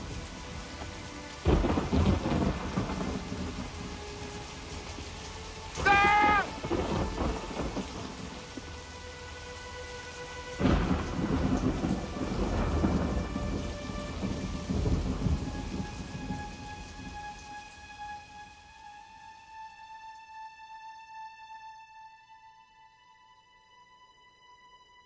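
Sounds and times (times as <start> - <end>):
thunder rumbling: 0.0 - 8.7, 10.6 - 17.3
steady rain: 0.0 - 22.8
high-pitched cry: 5.8 - 6.6.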